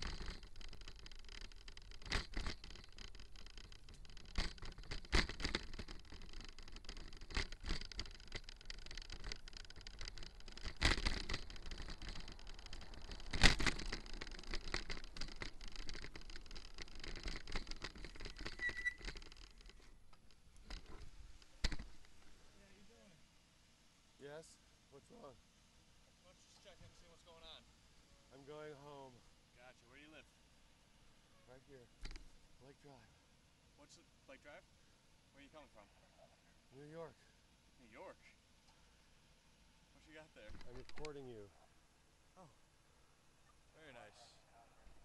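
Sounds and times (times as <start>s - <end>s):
bicycle knocks and rattles: 0.0s - 22.3s, 32.0s - 32.4s, 40.4s - 41.2s
high squeak: 18.5s - 19.1s.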